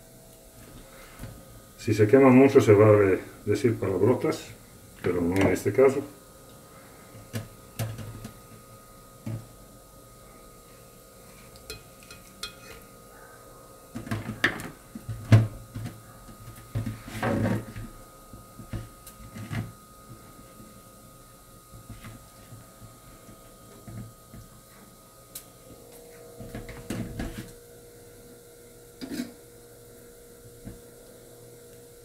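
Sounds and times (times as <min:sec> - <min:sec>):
metal tongs and knife clinking: 0:11.7 - 0:12.8.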